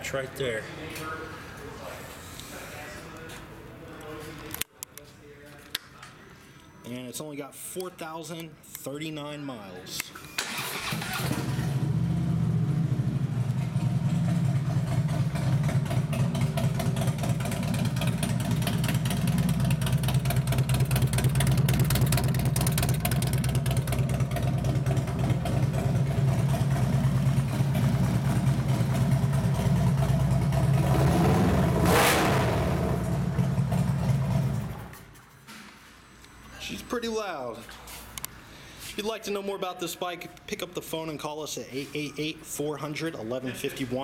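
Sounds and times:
motorcycle engine idling: 11.7 - 30.8
engine revving burst: 30.5 - 34.8.

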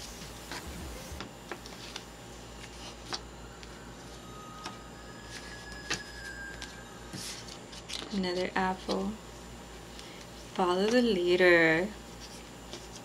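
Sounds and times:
low hum: 0.0 - 8.5.

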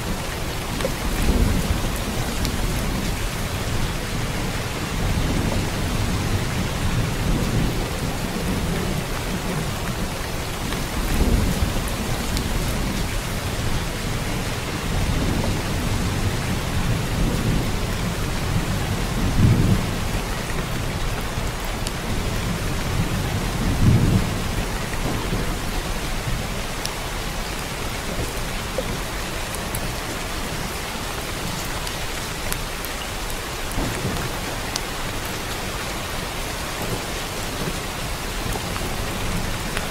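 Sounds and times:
low rolling thunder: 0.0 - 31.6, 33.7 - 39.9
heavy rain: 0.0 - 39.9.

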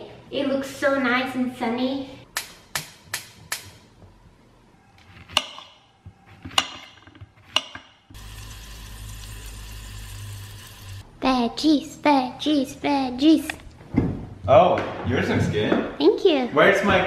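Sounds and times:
vegetables cooking in pan: 8.2 - 11.0.

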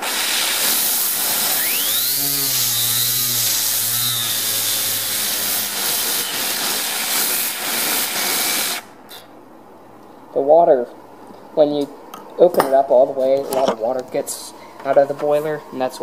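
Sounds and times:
steam jet hissing: 0.0 - 8.9
turbine high whine: 0.0 - 8.9.

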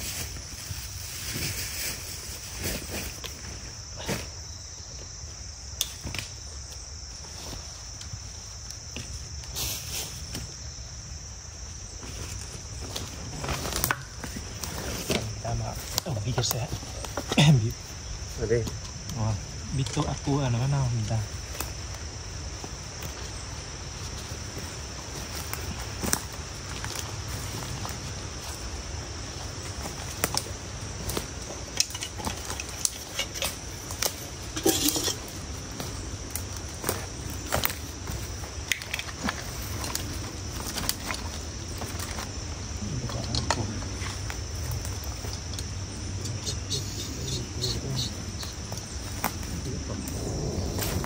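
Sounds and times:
footsteps in dry leaves: 0.0 - 3.7
insect chorus droning: 0.0 - 51.0.

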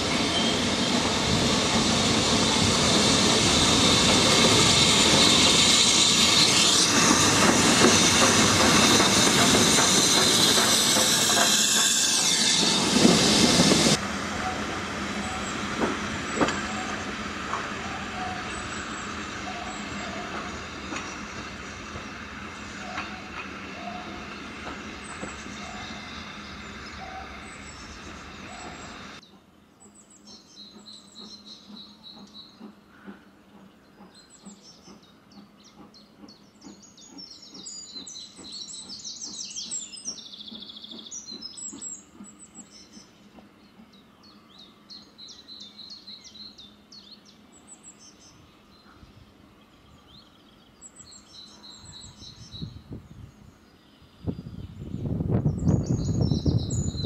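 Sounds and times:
train rumbling over rails: 0.0 - 57.0
birds chirping: 14.6 - 57.0.

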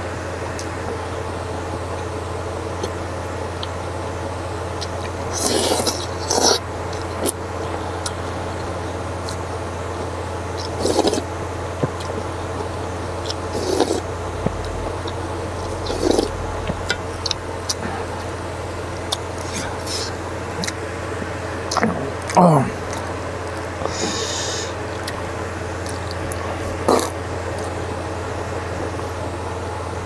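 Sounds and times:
steady low hum: 0.0 - 30.0
slurping noodles: 5.3 - 6.6, 10.6 - 11.3, 13.2 - 18.3.

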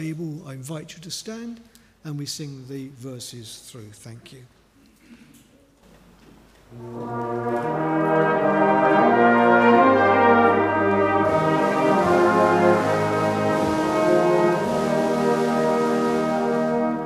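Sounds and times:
brass band playing a hymn: 6.7 - 17.0.

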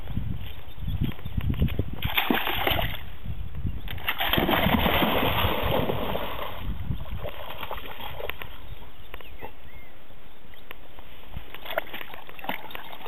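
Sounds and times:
water splashing and sloshing: 0.5 - 3.2, 3.9 - 8.8, 11.0 - 13.0.

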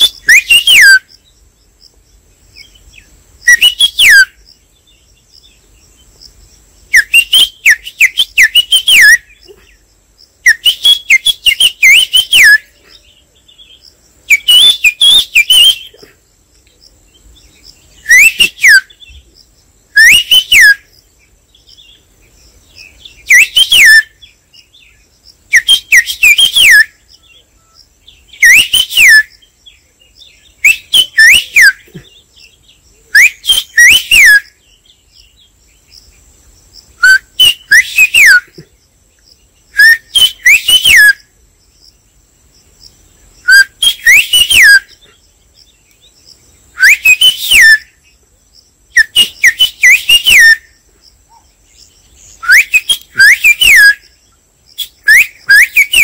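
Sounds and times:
man whistling bird calls: 0.0 - 1.1, 3.5 - 4.4, 7.0 - 9.3, 10.4 - 12.8, 14.3 - 16.0, 18.0 - 19.2, 20.0 - 20.9, 23.2 - 24.2, 25.5 - 27.0, 28.4 - 29.4, 30.6 - 32.1, 33.2 - 34.5, 37.0 - 38.6, 39.8 - 41.2, 43.4 - 45.0, 46.8 - 47.9, 49.0 - 50.7, 52.2 - 54.1, 54.8 - 56.0.

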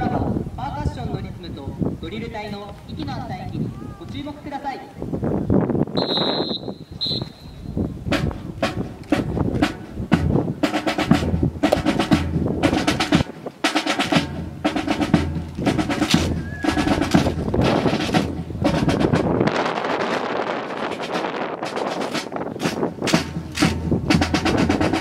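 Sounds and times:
bass drum: 8.0 - 13.3, 13.9 - 19.5, 22.6 - 25.0
drum-led music: 8.0 - 25.0
snare drum rolls: 8.1 - 25.0.

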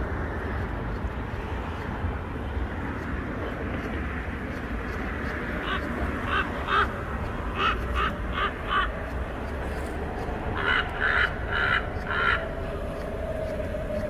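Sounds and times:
crow cawing: 5.6 - 9.0, 10.5 - 13.0.

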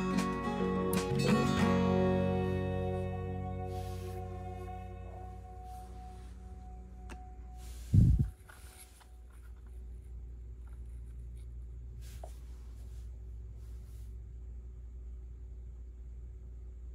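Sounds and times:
soft scraping: 3.7 - 6.7, 7.5 - 14.2.

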